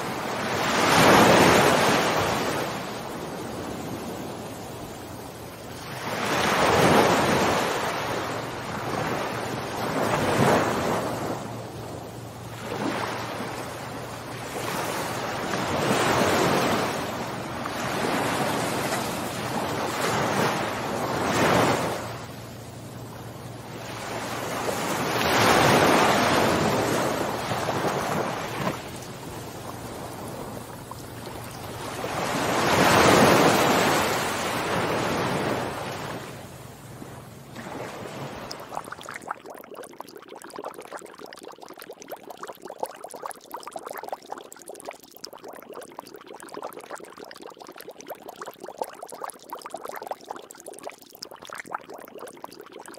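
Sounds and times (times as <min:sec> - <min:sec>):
ocean surf washing onto beach: 0:00.0 - 0:05.3, 0:05.9 - 0:38.9.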